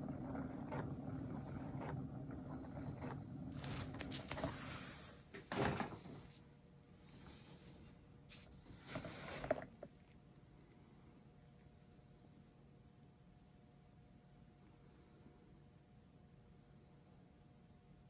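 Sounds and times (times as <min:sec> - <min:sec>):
spinning turntable whooshing: 0:00.0 - 0:04.5.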